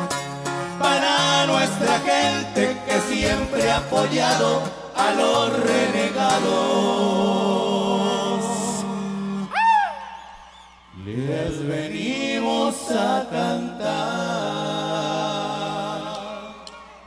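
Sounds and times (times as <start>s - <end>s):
band playing: 0.0s - 6.4s
man singing: 0.7s - 9.5s, 11.0s - 16.7s.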